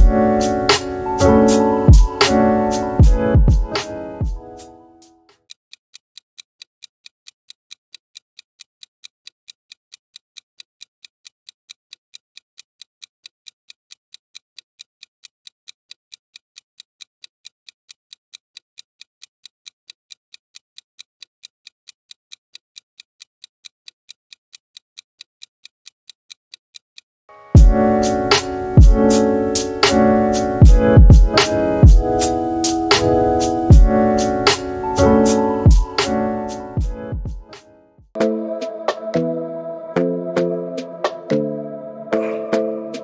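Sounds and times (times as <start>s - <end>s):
timer ticking: 0.0s - 5.2s, 27.6s - 37.6s, 38.2s - 43.0s.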